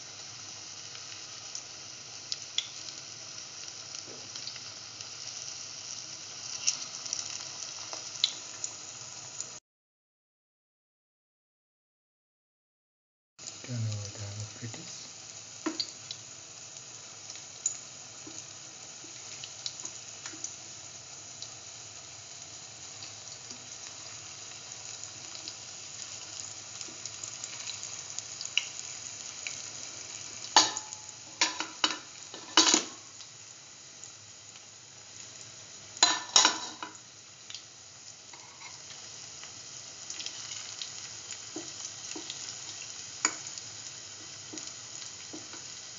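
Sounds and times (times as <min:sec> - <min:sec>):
fritters sizzling in hot oil: 0:00.0 - 0:09.6, 0:13.4 - 0:45.9
spatula scraping a pan: 0:38.3 - 0:38.8.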